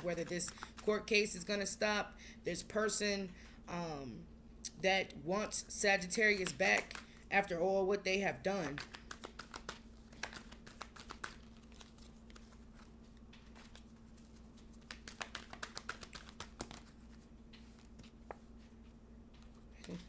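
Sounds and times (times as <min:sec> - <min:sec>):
cards being shuffled: 0:00.0 - 0:01.0, 0:06.2 - 0:07.2, 0:08.5 - 0:20.0
steady low hum: 0:00.0 - 0:20.0.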